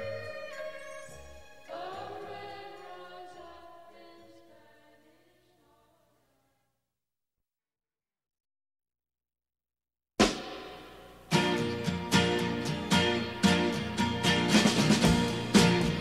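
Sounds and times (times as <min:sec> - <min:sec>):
voices singing in harmony: 0:00.0 - 0:05.4
folk-rock song: 0:11.3 - 0:16.0.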